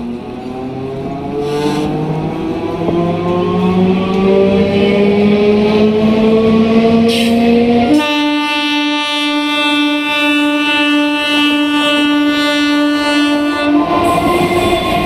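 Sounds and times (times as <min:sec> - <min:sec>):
train horn blast: 0:01.4 - 0:02.1, 0:07.1 - 0:15.0.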